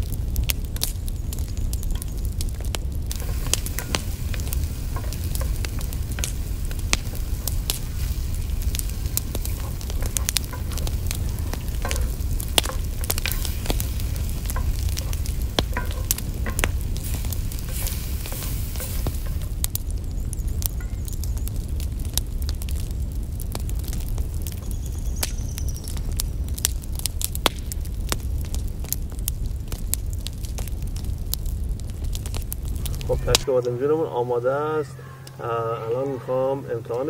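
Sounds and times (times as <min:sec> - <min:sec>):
low rumble: 0:00.0 - 0:25.0
food sizzling in hot oil: 0:00.0 - 0:29.6
wooden spoon scraping skillet: 0:03.1 - 0:19.7.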